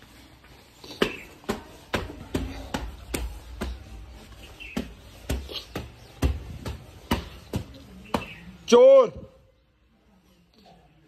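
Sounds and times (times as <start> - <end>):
birds chirping: 2.4 - 8.8.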